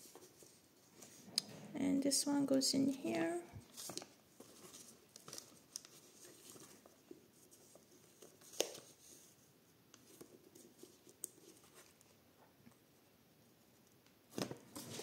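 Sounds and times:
paper pages handled: 0.0s - 1.5s, 3.6s - 12.2s.

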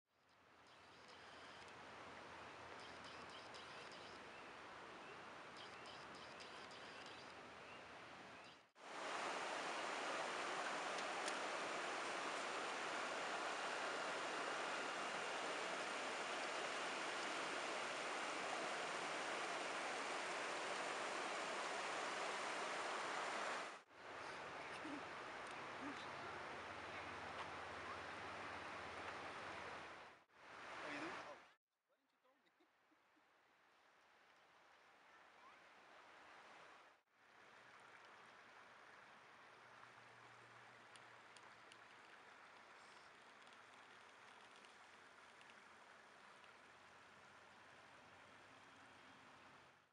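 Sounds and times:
flowing river water hiss: 0.6s - 31.5s, 34.0s - 49.9s
river rapids rushing: 8.8s - 27.2s.

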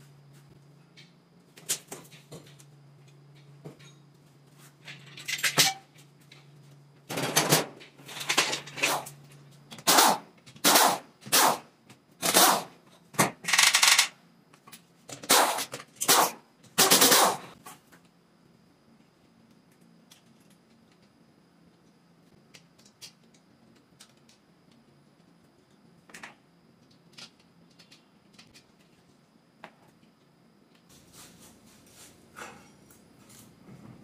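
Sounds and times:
pneumatic impact wrench hammering: 9.8s - 11.6s, 12.2s - 12.7s, 15.2s - 17.5s.

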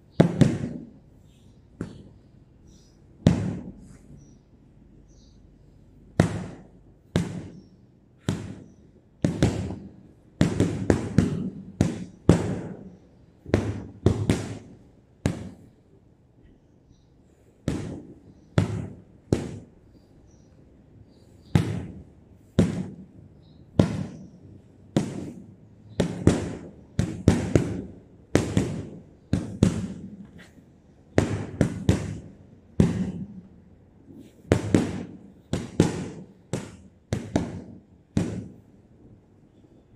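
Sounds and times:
gloves punching heavy bag: 0.2s - 0.9s, 3.3s - 3.8s, 6.2s - 15.7s, 17.7s - 19.7s, 21.5s - 23.2s, 23.8s - 24.3s, 24.9s - 30.3s, 31.2s - 33.4s, 34.4s - 38.6s.

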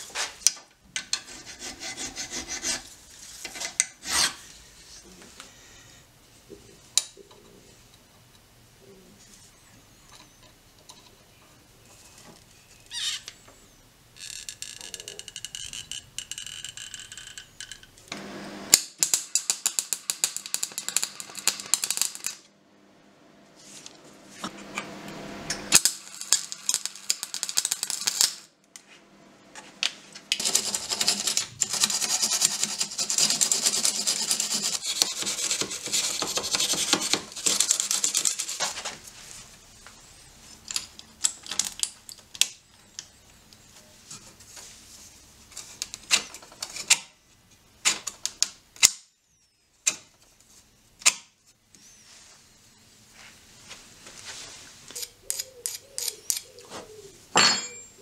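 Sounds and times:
steel file rasping: 1.1s - 2.9s, 4.0s - 4.4s, 30.4s - 38.6s
arc welding crackle: 18.7s - 22.5s, 25.7s - 28.5s.

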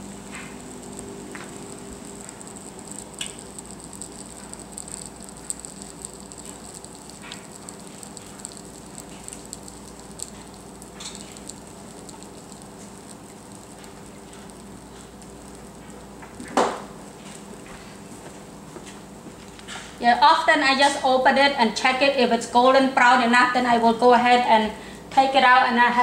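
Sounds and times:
crackling pops: 0.0s - 17.7s
batter sizzling in waffle iron: 0.0s - 18.0s.

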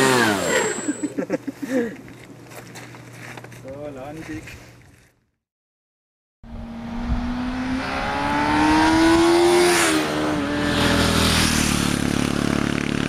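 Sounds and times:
motor revving: 0.0s - 1.1s, 6.5s - 13.0s.

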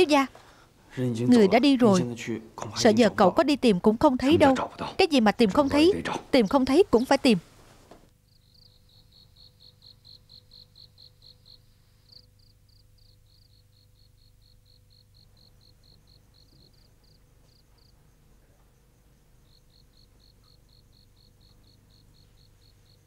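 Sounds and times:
crickets chirping: 8.1s - 23.0s.

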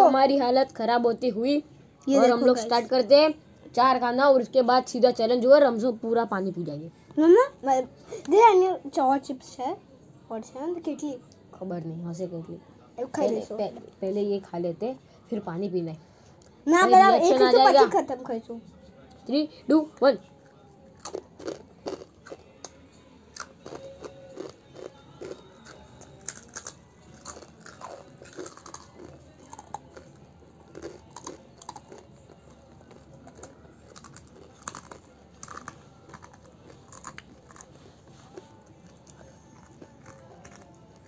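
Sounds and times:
children chewing crunchy snacks: 21.0s - 22.8s, 23.4s - 41.0s.

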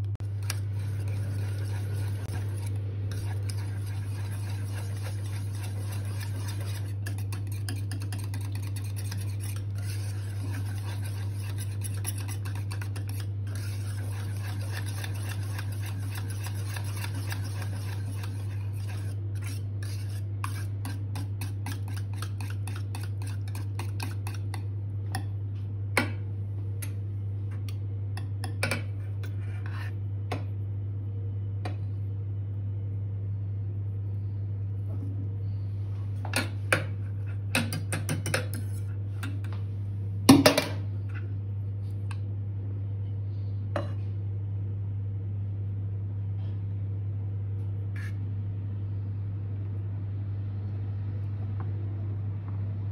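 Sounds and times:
steady low hum: 0.0s - 52.9s
whisk scraping a metal pot: 0.1s - 24.6s, 28.9s - 30.0s, 36.9s - 39.0s, 48.0s - 48.2s.

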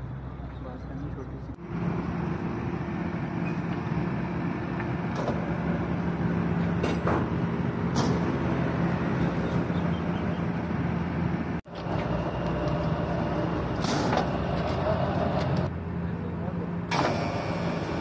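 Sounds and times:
machinery hum: 1.6s - 15.7s.

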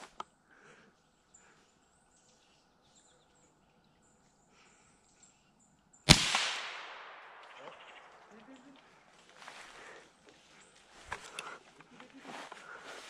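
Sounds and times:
rifle shot echoing: 6.1s - 8.3s.

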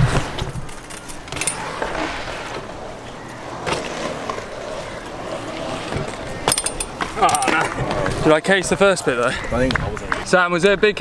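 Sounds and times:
bike tyres rolling on concrete: 0.0s - 11.0s
bike landing clack: 5.9s - 8.2s.

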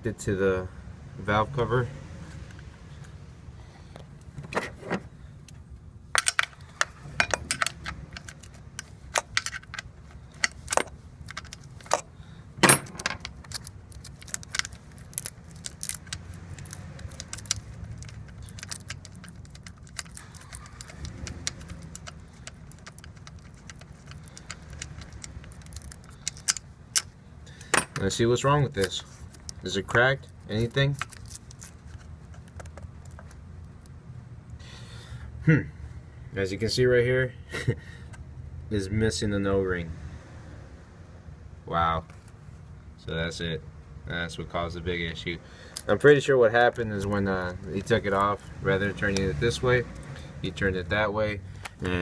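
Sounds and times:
low steady hum: 0.0s - 39.7s
plastic parts clicking and rattling: 6.2s - 28.0s, 28.8s - 33.9s.

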